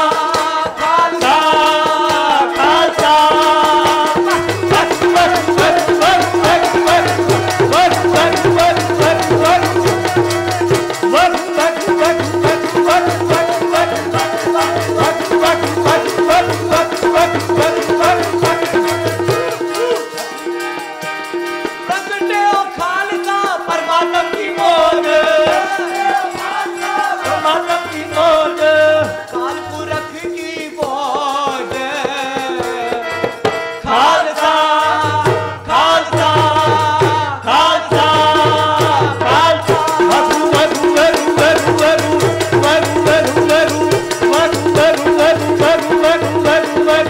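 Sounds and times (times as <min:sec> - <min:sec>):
harmonium: 0:00.0 - 0:47.0
tabla beat: 0:00.0 - 0:47.0
voices singing: 0:00.0 - 0:47.0.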